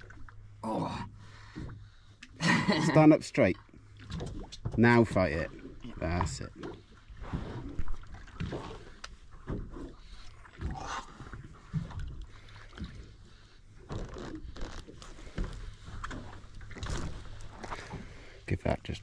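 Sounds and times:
scrapes and knocks on boat: 0:04.0 - 0:05.2, 0:06.3 - 0:18.2.

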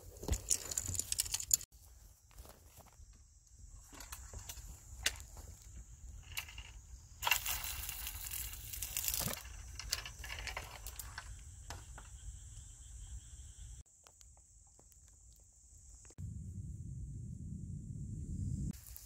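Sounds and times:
rustling and crinkling: 0:00.0 - 0:03.1, 0:03.8 - 0:12.1
high insect drone: 0:00.1 - 0:19.0.

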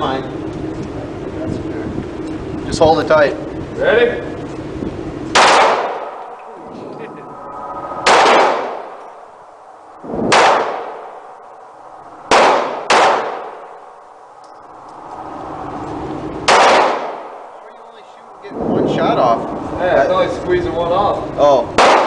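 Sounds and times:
pistol shots echoing indoors: 0:05.3 - 0:06.4, 0:08.1 - 0:09.0, 0:10.3 - 0:11.4, 0:12.3 - 0:14.0, 0:16.4 - 0:17.5, 0:21.8 - 0:22.0.

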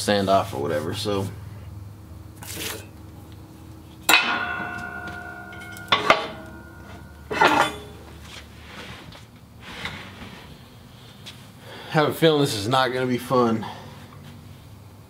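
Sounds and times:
steel blocks clanking: 0:04.1 - 0:08.1.

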